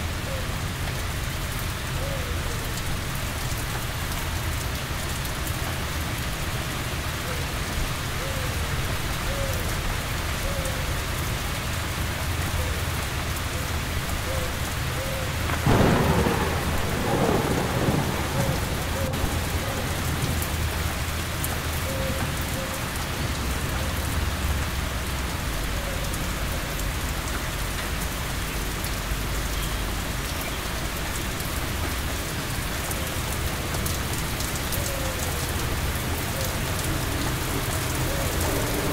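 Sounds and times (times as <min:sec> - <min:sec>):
heavy rain falling: 0:00.0 - 0:38.9
thunderclap rolling rumble: 0:15.4 - 0:24.6.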